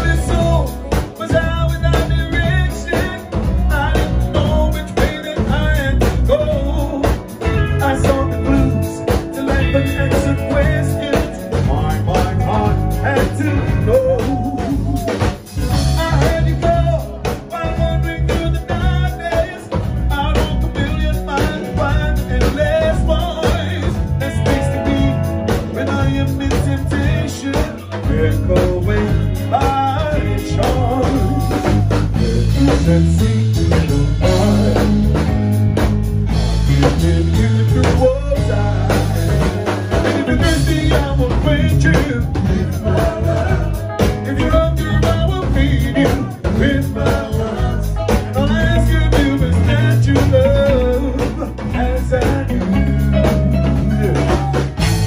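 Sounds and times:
live reggae band playing: 0.0s - 55.0s
man singing: 0.0s - 55.0s.

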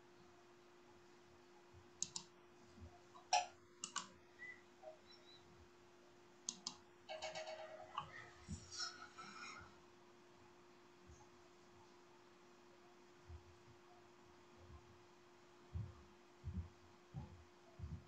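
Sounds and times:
faint steady hum: 0.0s - 18.0s
sharp short clicks: 2.0s - 2.3s, 3.3s - 4.1s, 6.5s - 6.8s.

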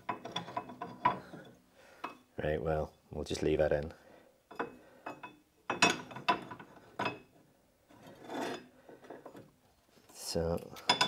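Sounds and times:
metal knocks and clinks: 0.0s - 2.2s, 4.5s - 7.3s, 10.8s - 11.0s
metal scraping rub: 7.9s - 9.4s.

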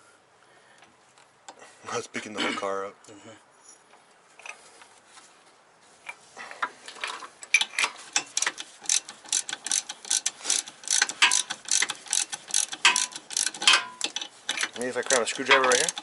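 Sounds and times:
ratchet wrench clicking: 8.2s - 16.0s.

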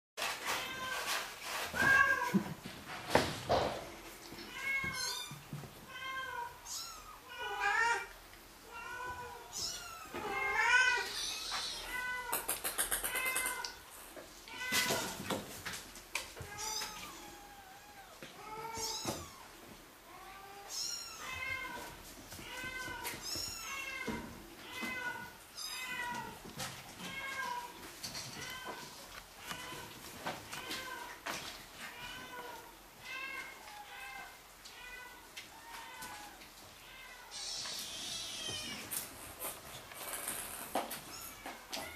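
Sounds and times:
kittens meowing: 4.5s - 8.1s, 8.7s - 13.8s, 16.4s - 26.4s.

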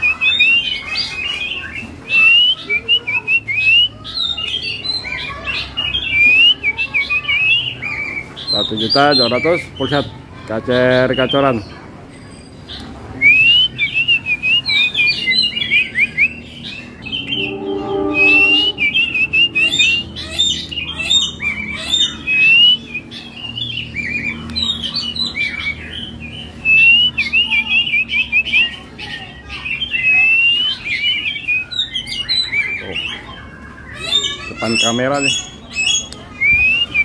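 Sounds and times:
bird singing: 17.0s - 19.6s.

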